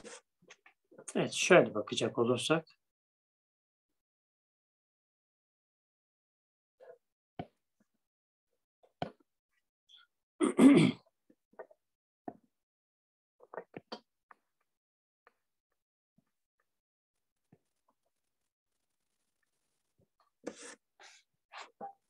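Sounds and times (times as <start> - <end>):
person clearing throat: 10.4 - 11.1.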